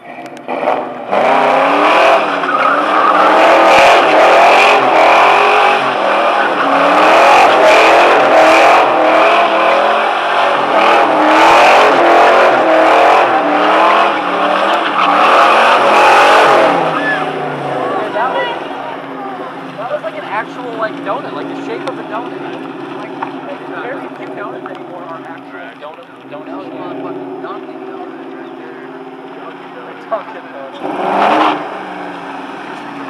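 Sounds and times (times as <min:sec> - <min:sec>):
car engine at high revs: 0:00.0 - 0:33.0
tyres squealing: 0:01.4 - 0:25.5.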